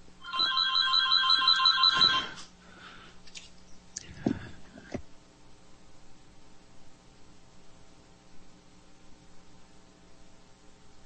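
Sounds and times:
electronic telephone ringing: 0.2 - 2.4.

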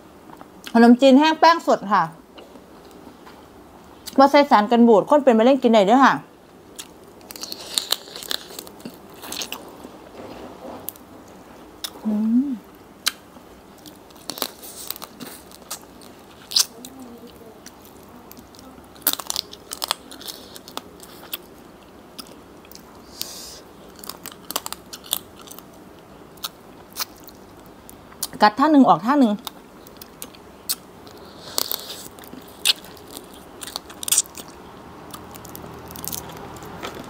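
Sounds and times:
sharp crunches while eating: 6.7 - 9.7, 13.0 - 16.8, 17.6 - 21.5, 22.2 - 28.4, 29.4 - 37.0
biting and chewing: 6.7 - 9.9, 13.0 - 23.0, 23.8 - 28.4, 29.4 - 37.0
person humming mm: 12.0 - 12.7.

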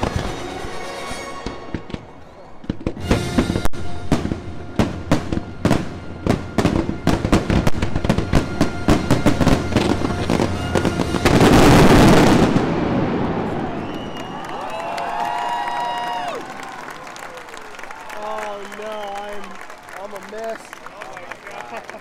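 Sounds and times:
music: 0.0 - 1.9, 3.0 - 11.5
fireworks bursting: 0.0 - 20.8.

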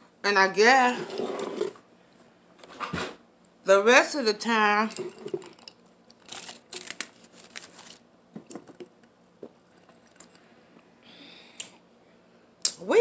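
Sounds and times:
rustling and crinkling: 4.9 - 8.8.

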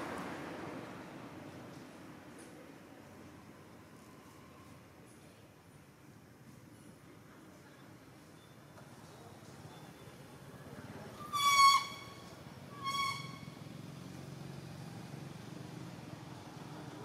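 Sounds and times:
short high-pitched squeals: 11.2 - 13.7.

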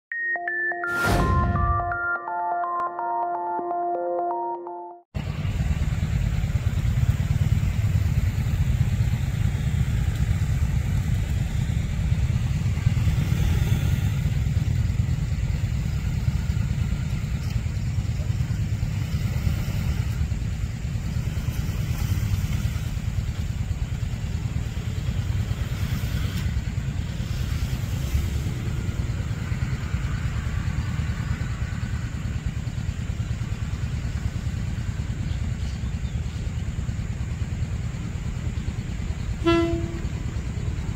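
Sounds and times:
diesel railcar approaching: 5.2 - 40.9
road traffic rumble: 5.2 - 40.9.

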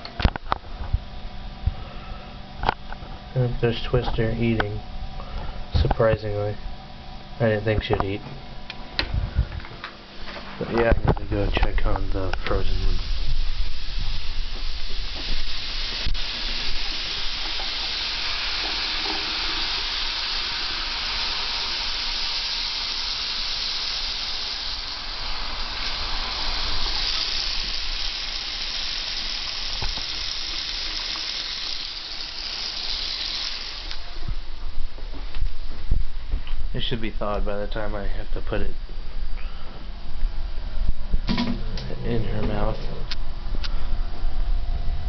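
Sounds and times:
tap water running: 11.3 - 34.6.

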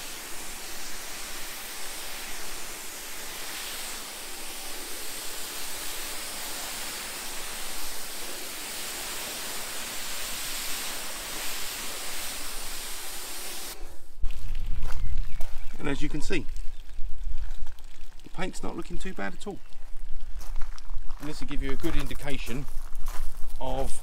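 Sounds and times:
pressure washer spraying water: 0.0 - 14.1.

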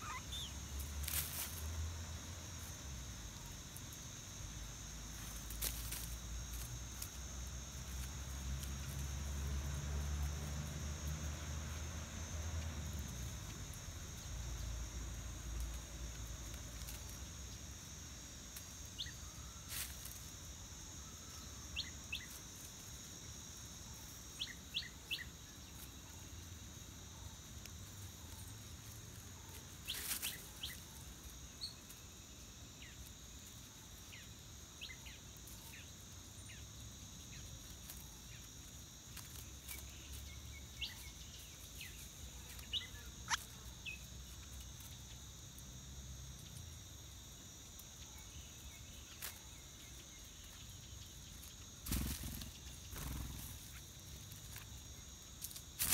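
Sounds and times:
thin bird chirps: 0.0 - 0.6
high insect drone: 0.0 - 55.9.

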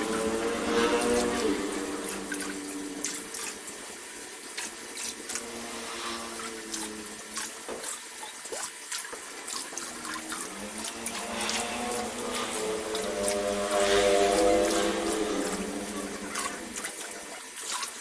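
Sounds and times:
water drips and splashes: 0.0 - 18.0
water splashing and bubbling: 0.0 - 18.0.

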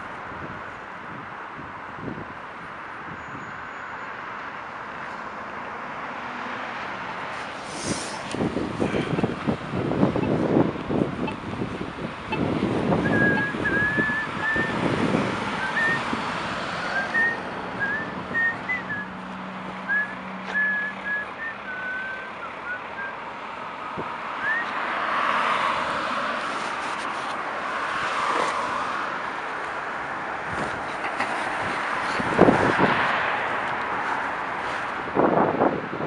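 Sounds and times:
city traffic: 0.0 - 36.0
person whistling a tune: 13.0 - 14.8, 15.6 - 16.0, 16.9 - 19.1, 19.9 - 23.2, 24.4 - 24.7
vehicle passing close: 24.3 - 35.8.

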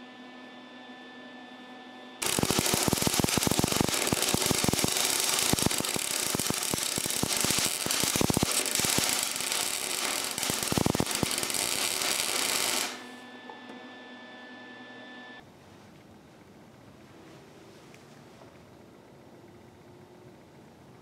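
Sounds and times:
welding arc crackling: 2.2 - 13.2.

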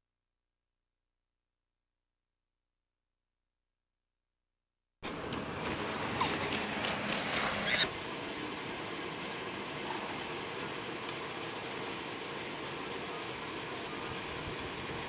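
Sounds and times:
steady hiss: 7.6 - 15.0.

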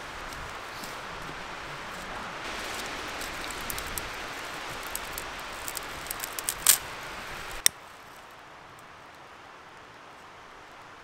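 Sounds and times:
dry grass crackling and rustling: 0.0 - 8.4
wind hiss: 0.0 - 11.0.

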